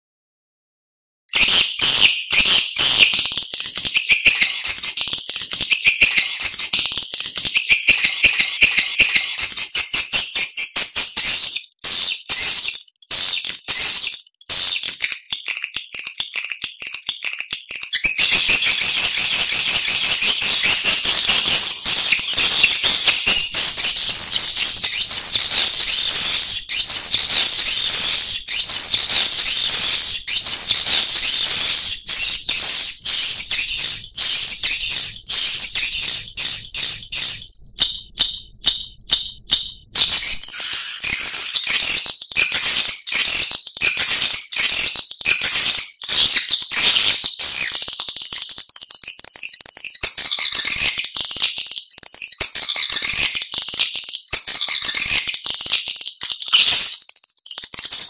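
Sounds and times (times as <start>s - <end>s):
swiftlets twittering: 18.0s - 42.9s.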